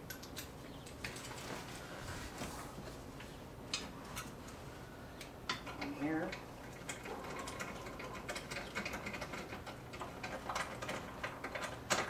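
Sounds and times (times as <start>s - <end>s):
metal parts clicking and tapping: 0.0s - 1.4s, 5.2s - 12.0s.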